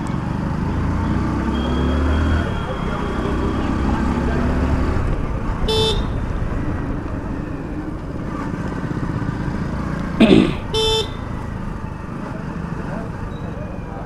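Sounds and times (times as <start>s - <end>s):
road and wind noise: 0.0s - 14.0s
short horn beeps: 10.8s - 11.2s.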